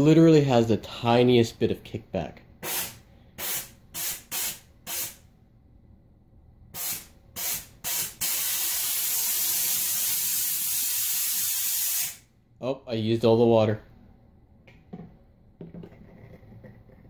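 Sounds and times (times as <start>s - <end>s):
steam gun hissing: 2.6s - 5.2s, 6.7s - 12.2s.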